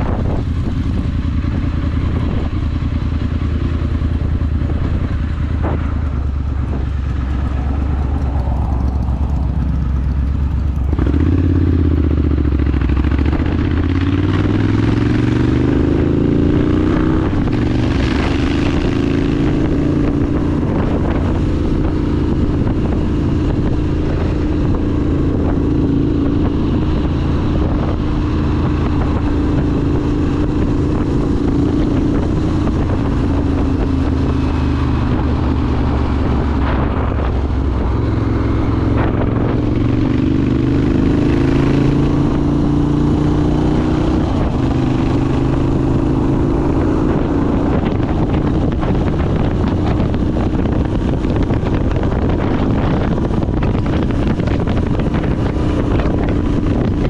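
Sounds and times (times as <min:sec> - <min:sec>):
motorcycle engine accelerating: 0:00.0 - 0:57.0.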